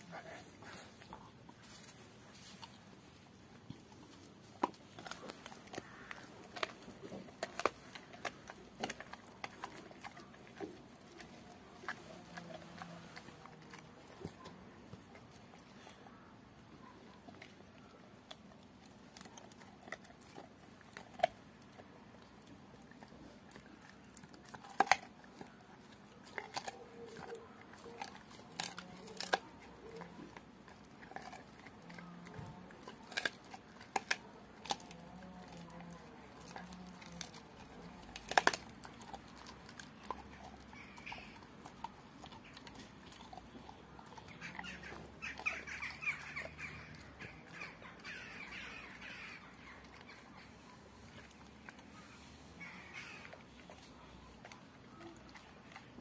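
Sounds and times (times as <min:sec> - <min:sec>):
dog gnawing a bone: 0:00.0 - 0:56.0.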